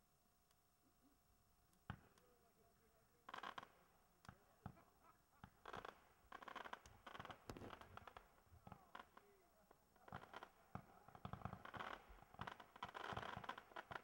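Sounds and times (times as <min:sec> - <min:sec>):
distant fireworks popping: 0:03.2 - 0:14.0
fireworks crackling: 0:03.3 - 0:14.0.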